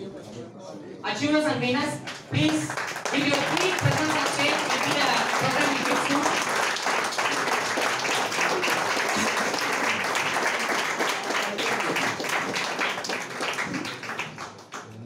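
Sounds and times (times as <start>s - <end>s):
audience applauding: 2.0s - 15.0s.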